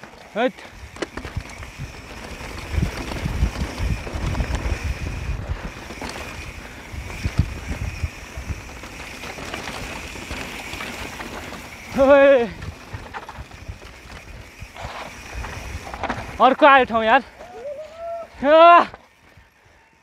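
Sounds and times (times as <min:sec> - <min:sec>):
bike tyres rumbling on dirt: 0:00.0 - 0:19.9
wind on microphone: 0:00.8 - 0:08.9.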